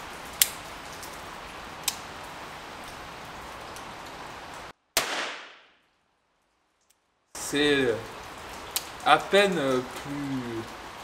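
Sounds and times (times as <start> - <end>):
steady hiss: 6.5 - 11.0.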